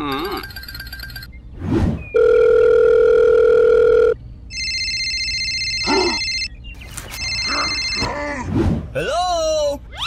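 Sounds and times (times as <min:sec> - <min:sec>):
trilling telephone ring: 0:00.1 - 0:01.3, 0:02.2 - 0:06.5, 0:07.2 - 0:08.1.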